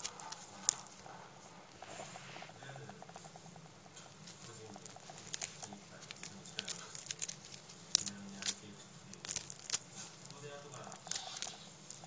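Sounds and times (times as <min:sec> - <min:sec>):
cat fur rubbing on microphone: 0:01.8 - 0:03.0.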